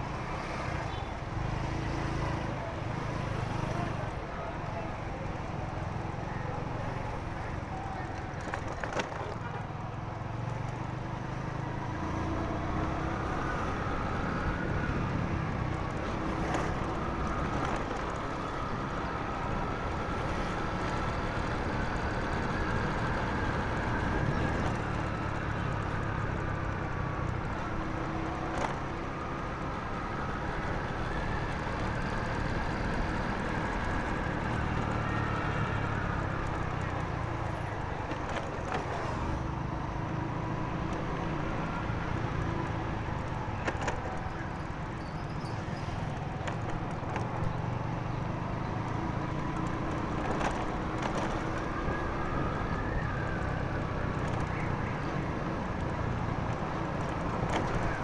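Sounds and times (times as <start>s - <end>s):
road and wind noise: 0.0s - 58.0s.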